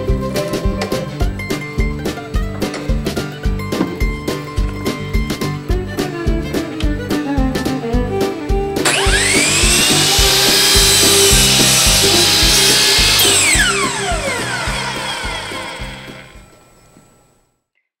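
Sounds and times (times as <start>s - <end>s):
background music with beat: 0.0s - 16.4s
miter saw cutting wood: 8.8s - 16.8s.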